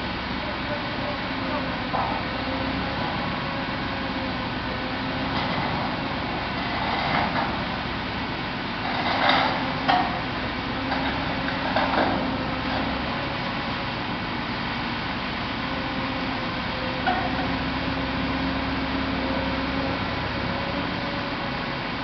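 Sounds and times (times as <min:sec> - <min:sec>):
crane diesel engine under load: 0:00.0 - 0:22.0
knocks and clanks: 0:08.9 - 0:10.2, 0:10.9 - 0:12.9.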